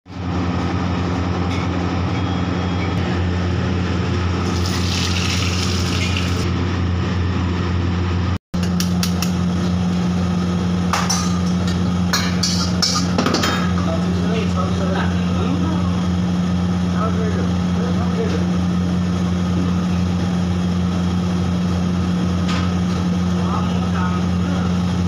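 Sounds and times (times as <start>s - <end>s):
low machine hum: 0.1s - 25.0s
oil sizzling: 4.4s - 6.5s
ladle clinking against wok: 11.0s - 13.9s.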